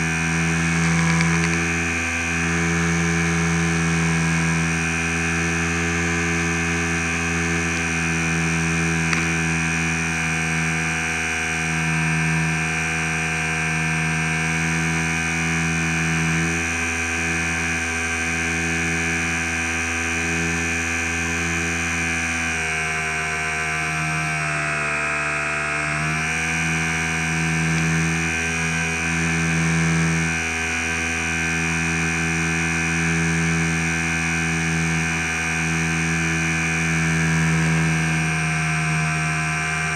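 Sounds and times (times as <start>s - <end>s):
electric motor and propeller whine: 0.0s - 39.9s.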